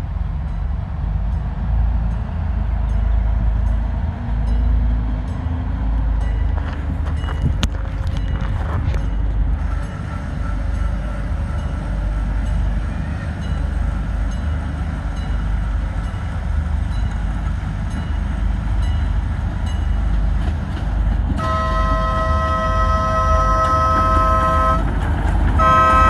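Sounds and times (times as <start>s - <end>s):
low rumble: 0.0s - 10.1s
train horn chord: 9.6s - 14.0s, 21.4s - 25.0s, 25.6s - 26.0s.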